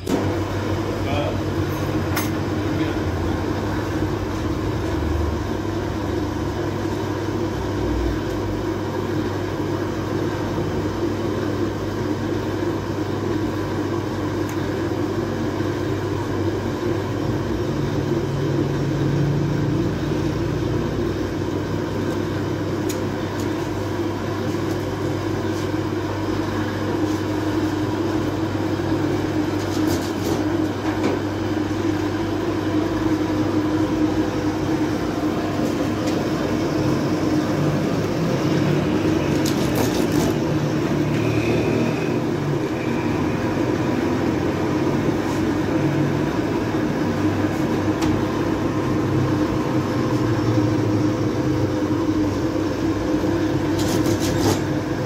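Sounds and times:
bakery machinery humming: 0:00.0 - 0:55.0.

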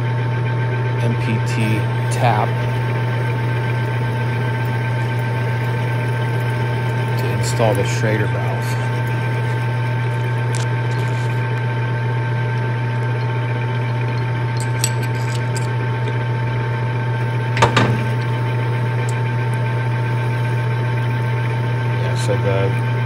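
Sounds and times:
lathe motor hum and whine: 0:00.0 - 0:23.0
drill bit scraping metal: 0:01.1 - 0:11.6, 0:14.6 - 0:15.7, 0:17.2 - 0:23.0.

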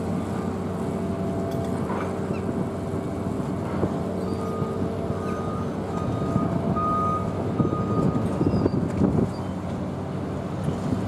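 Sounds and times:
diesel machinery drone: 0:00.0 - 0:11.0
reversing alarm beeping: 0:04.2 - 0:08.6.

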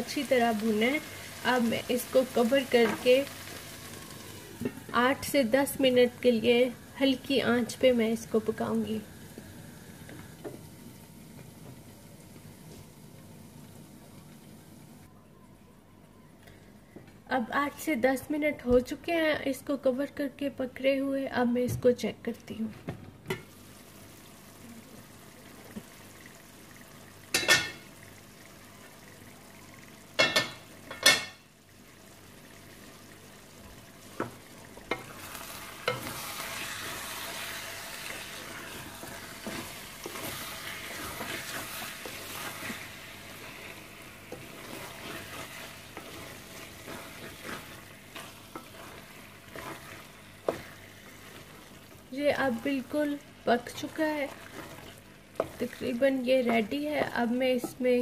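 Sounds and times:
curry sizzling in pot: 0:00.0 - 0:15.1, 0:23.3 - 0:58.0
wooden spatula stirring and scraping: 0:34.1 - 0:58.0.

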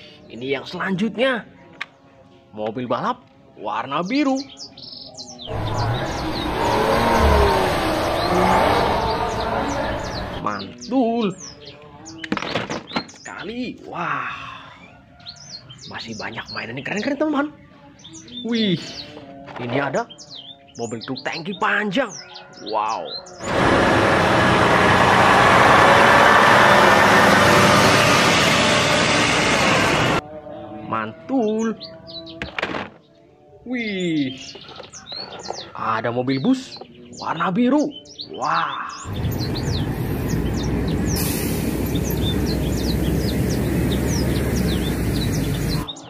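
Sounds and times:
birds chirping: 0:03.6 - 0:24.9, 0:25.8 - 0:46.0
street traffic: 0:05.4 - 0:10.8, 0:23.3 - 0:30.2, 0:39.0 - 0:46.0
heavy truck engines passing: 0:05.5 - 0:10.4, 0:23.4 - 0:30.2, 0:39.1 - 0:45.9.

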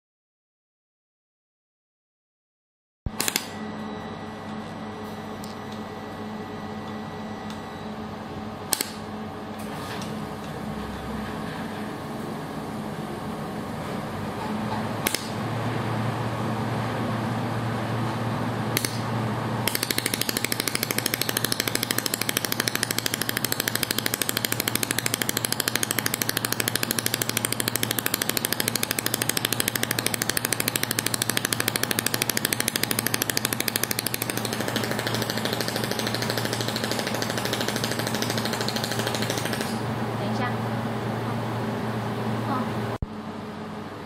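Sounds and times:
machine humming: 0:03.1 - 0:44.0
laser welder ticking pulses: 0:19.7 - 0:39.8.

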